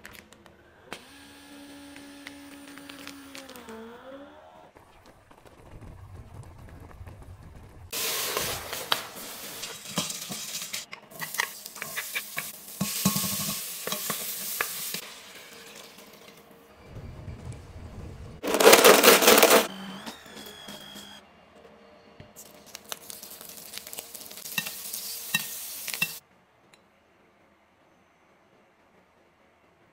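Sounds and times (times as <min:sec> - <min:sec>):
food sizzling in a pan: 0:07.9 - 0:16.4, 0:22.7 - 0:26.2.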